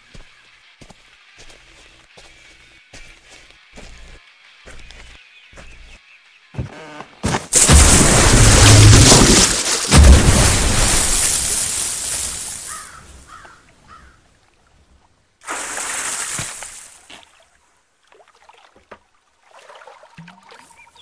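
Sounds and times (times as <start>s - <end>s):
car splashing into water: 7.6s - 12.5s.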